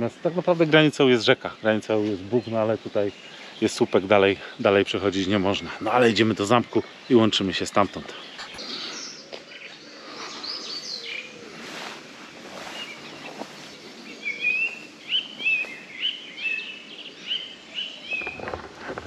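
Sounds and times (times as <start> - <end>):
bird chirping: 0.0 - 19.0
faint high bird calls: 5.4 - 18.7.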